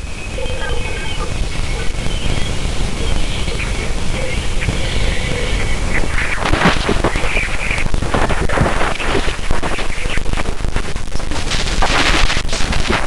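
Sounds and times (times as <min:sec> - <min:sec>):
faint whistling tones: 0:00.0 - 0:06.4
crackling radio static: 0:00.0 - 0:13.0
steady low rumble: 0:00.0 - 0:13.0.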